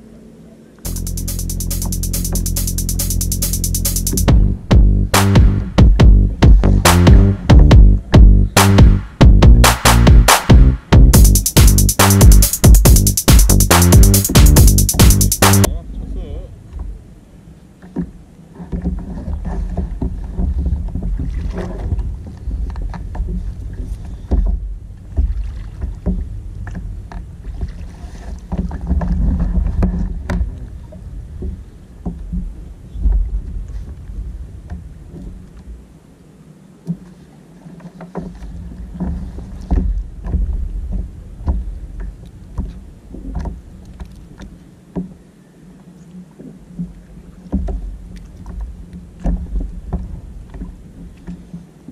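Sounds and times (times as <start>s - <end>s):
water against kayak hull: 15.7s - 51.9s.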